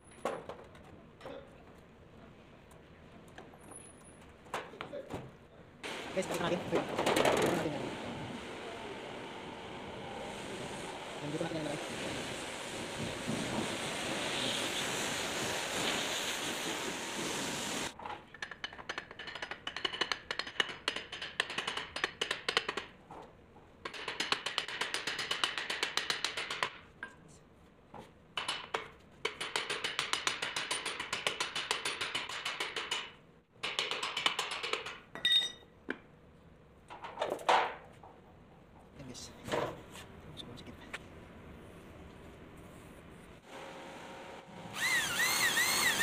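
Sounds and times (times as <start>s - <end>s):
faint high ringing: 35.2s - 35.7s.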